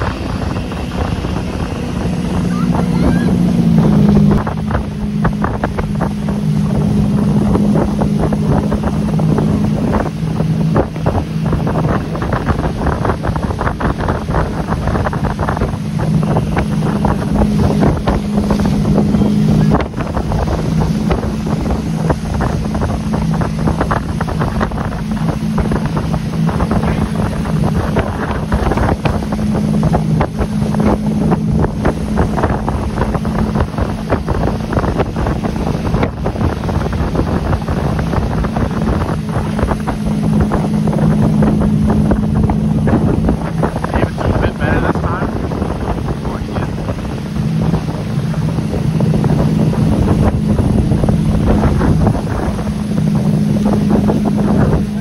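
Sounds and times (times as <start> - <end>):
boat wake churning: 0.0 - 55.0
motorboat engine running: 0.0 - 55.0
wind buffeting microphone: 0.0 - 55.0.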